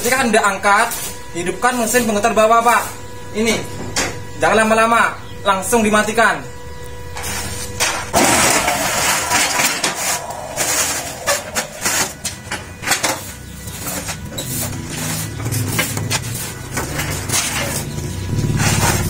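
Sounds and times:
electric motor running: 0:18.1 - 0:19.0.

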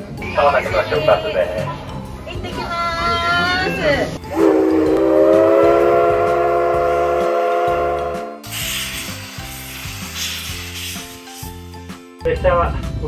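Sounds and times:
steam whistle blast: 0:04.2 - 0:09.2
steam hissing: 0:08.4 - 0:11.6.

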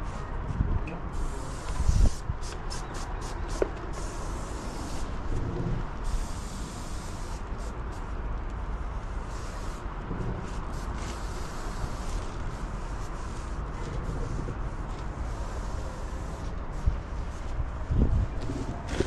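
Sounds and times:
paint spray gun hissing: 0:01.2 - 0:05.0, 0:06.0 - 0:07.6
low rumble: 0:05.2 - 0:06.1, 0:10.0 - 0:10.8.

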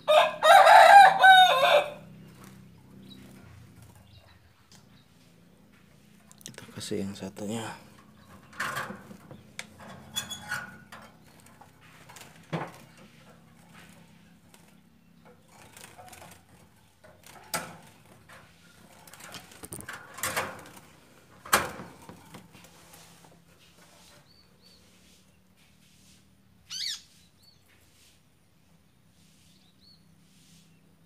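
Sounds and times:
small bird fluttering: 0:11.2 - 0:19.9.

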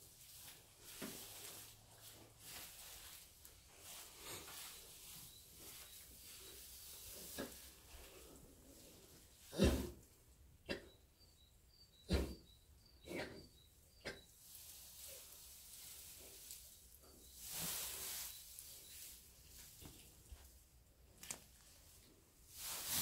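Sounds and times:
straw rustling: 0:00.1 - 0:09.4, 0:14.3 - 0:23.0.

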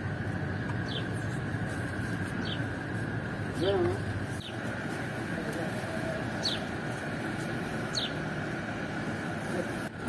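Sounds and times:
background hum and hiss: 0:00.0 - 0:10.0
high falling bird chirps: 0:00.8 - 0:01.4, 0:02.3 - 0:02.8, 0:04.3 - 0:04.7, 0:06.3 - 0:06.8, 0:07.8 - 0:08.3.

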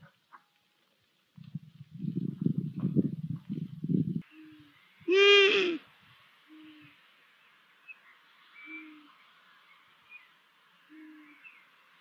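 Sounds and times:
owl hooting softly: 0:10.9 - 0:11.4.

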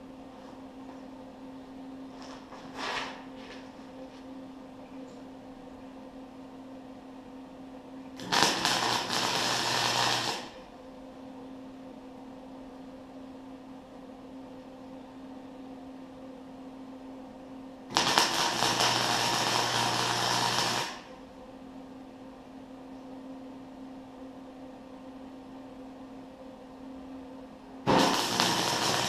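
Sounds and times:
steady hum: 0:00.0 - 0:29.0
welding arc crackling: 0:08.2 - 0:10.6, 0:17.9 - 0:21.1, 0:27.9 - 0:29.0.

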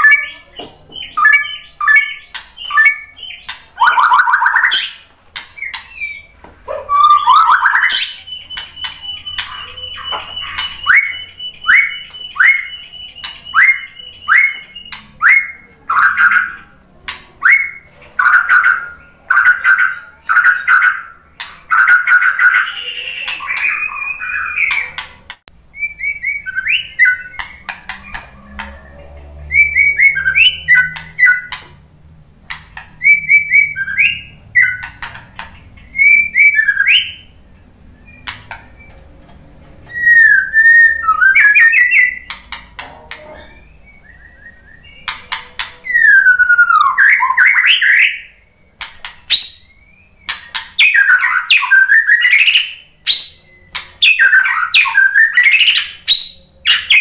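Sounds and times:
bird singing whistled phrases: 0:00.0 - 0:05.0, 0:05.6 - 0:06.3, 0:06.9 - 0:16.7, 0:17.4 - 0:25.0, 0:25.7 - 0:31.6, 0:33.0 - 0:34.9, 0:35.9 - 0:37.4, 0:39.9 - 0:42.4, 0:43.2 - 0:45.1, 0:45.8 - 0:57.0
bird clicking notes: 0:07.2 - 0:15.4, 0:40.1 - 0:43.3.

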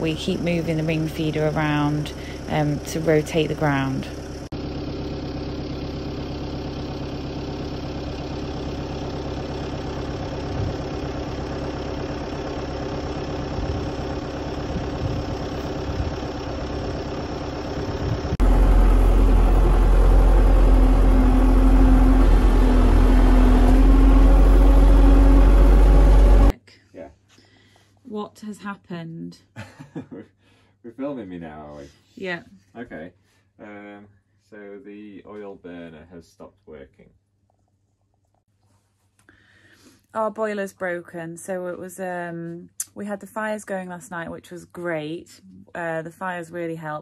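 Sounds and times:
tractor engine running: 0:00.0 - 0:26.5.

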